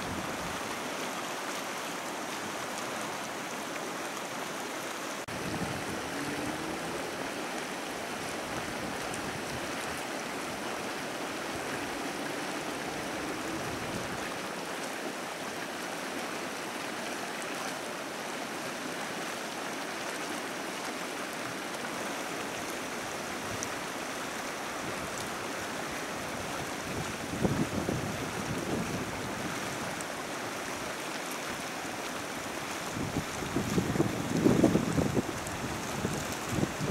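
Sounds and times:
hot spring rushing water: 0.0s - 36.9s
wind buffeting microphone: 5.3s - 7.2s, 26.3s - 29.9s, 32.8s - 36.9s.

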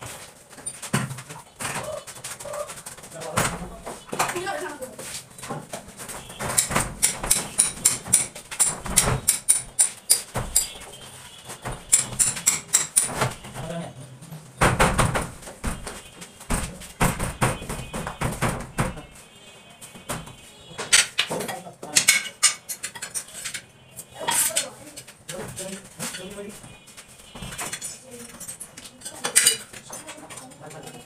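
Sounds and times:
plastic door panel knocking: 14.6s - 15.8s.

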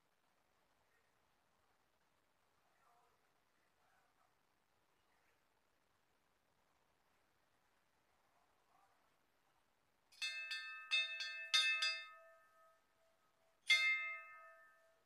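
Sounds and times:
brass bell ringing: 10.2s - 12.9s, 13.7s - 15.0s.

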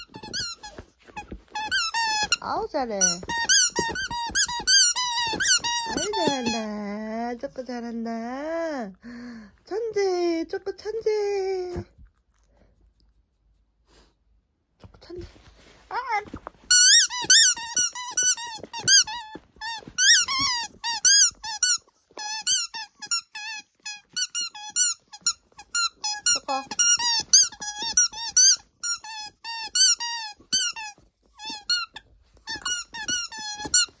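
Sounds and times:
squeaky ball squeaking: 0.0s - 7.0s, 16.0s - 34.0s.

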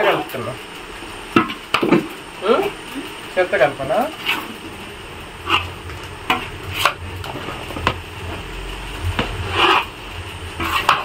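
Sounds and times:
metal ladle scraping a bowl: 9.4s - 9.9s, 10.6s - 11.0s.

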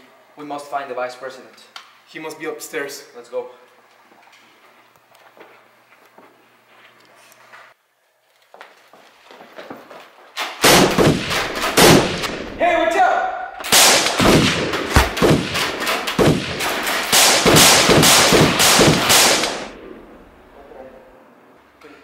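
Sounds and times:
rifle and pistol shots: 10.6s - 12.6s, 13.6s - 20.4s.

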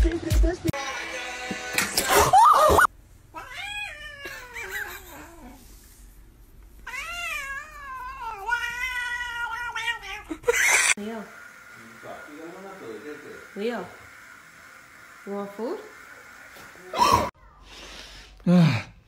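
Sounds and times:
cat yowling meows: 2.3s - 5.5s, 6.9s - 11.0s.

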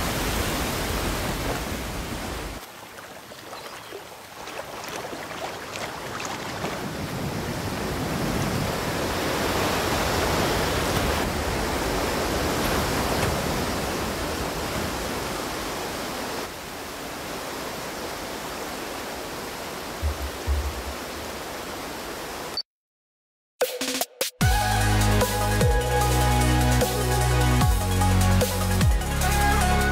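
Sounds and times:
waterfall rushing: 0.0s - 22.6s
low thumps: 20.0s - 21.1s.

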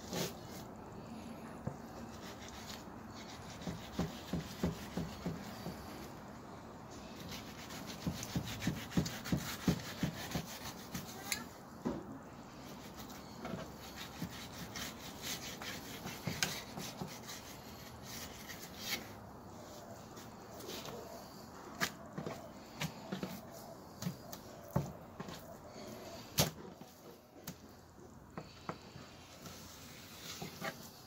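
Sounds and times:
knife scraping fish fillet: 7.2s - 11.1s.

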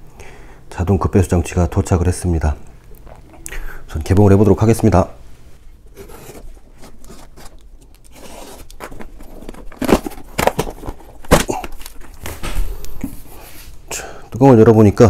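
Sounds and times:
packing tape tearing: 5.9s - 12.5s
cardboard box rustling: 5.9s - 13.2s.

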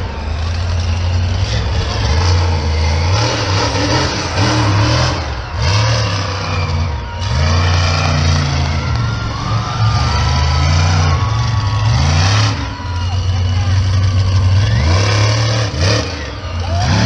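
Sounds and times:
truck engine revving: 0.0s - 17.0s.

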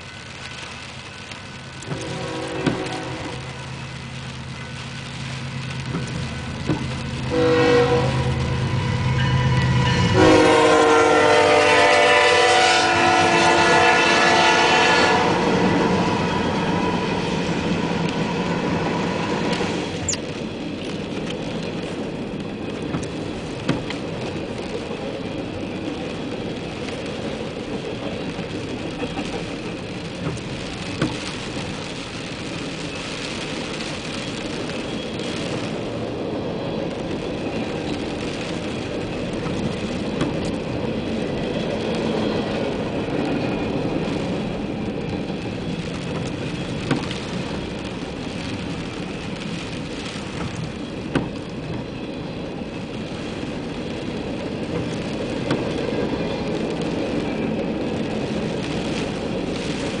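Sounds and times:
diesel locomotive engines rumbling: 0.0s - 60.0s
train air horn: 1.9s - 3.5s, 7.3s - 17.2s.

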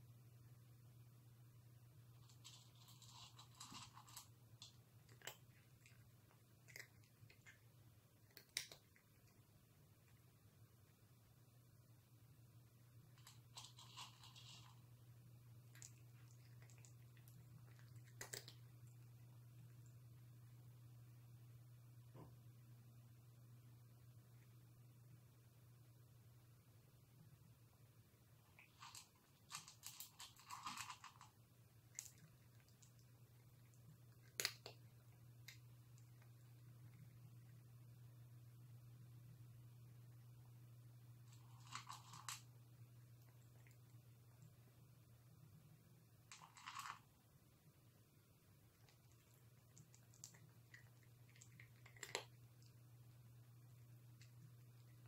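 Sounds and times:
cat crunching dry food: 2.2s - 10.3s, 13.0s - 20.6s, 28.4s - 37.9s, 41.2s - 44.7s, 46.2s - 47.1s, 48.7s - 55.0s.

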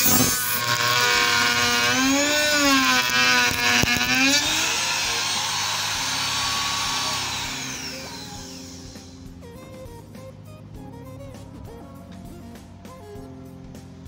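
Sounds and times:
router motor whine cutting wood: 0.0s - 9.4s.

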